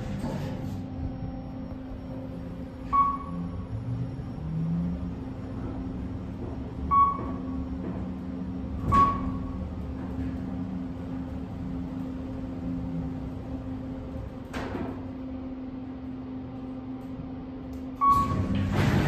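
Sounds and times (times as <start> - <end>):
elevator hum: 0.0 - 19.0
click: 17.0 - 18.1.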